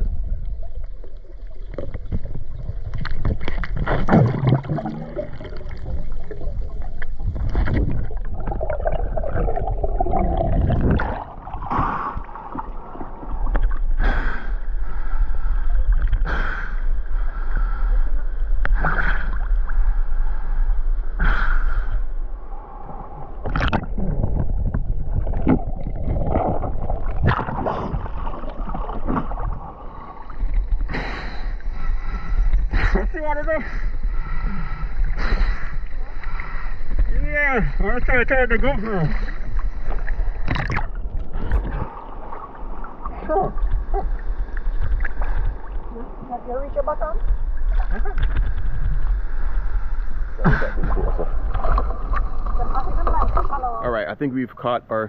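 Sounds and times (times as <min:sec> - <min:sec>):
water gurgling underwater: 0:00.0 - 0:14.1, 0:23.2 - 0:30.9, 0:39.0 - 0:53.8
water splashing: 0:00.0 - 0:17.8, 0:22.6 - 0:54.0
sharp splash: 0:03.3 - 0:06.0.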